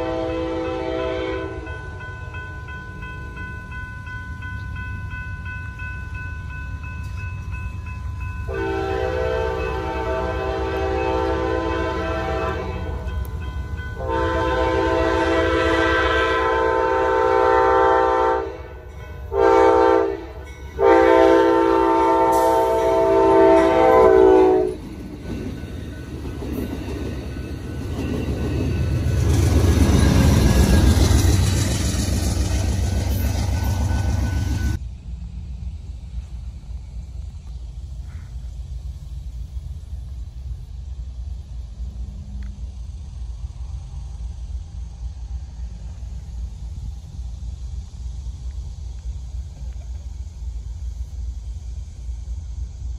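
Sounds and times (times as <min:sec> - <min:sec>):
locomotive chord horn blasts: 0:00.0 - 0:02.1, 0:08.5 - 0:13.4, 0:14.0 - 0:24.9
train wheels clattering over rails: 0:24.6 - 0:34.8.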